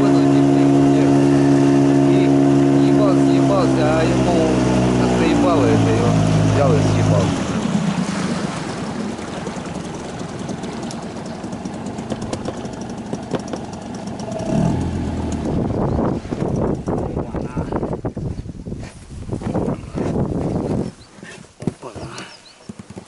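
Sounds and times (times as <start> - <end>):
boat motor running: 0.0 - 18.2
irregular knocks: 10.4 - 14.1.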